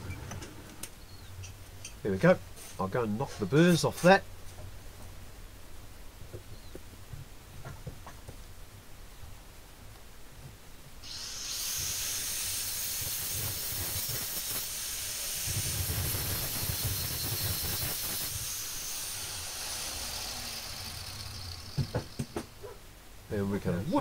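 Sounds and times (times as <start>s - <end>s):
angle grinder grinding metal: 11.0s - 22.6s.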